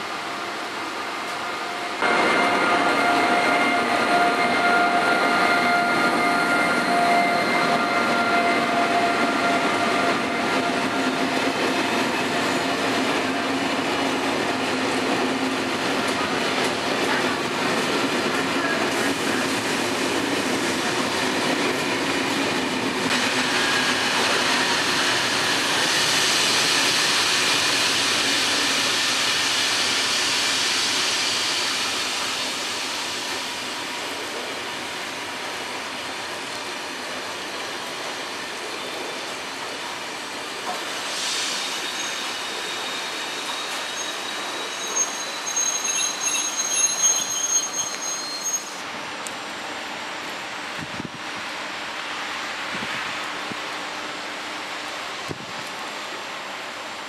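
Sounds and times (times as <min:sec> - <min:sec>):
train wheels rumbling on rails: 0:00.0 - 0:57.0
locomotive whine: 0:00.3 - 0:14.7.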